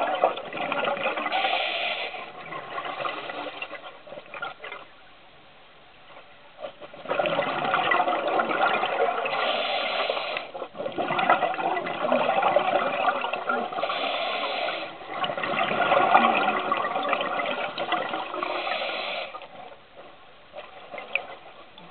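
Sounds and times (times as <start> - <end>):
scuba regulator exhaling bubbles: 6.9 - 19.6.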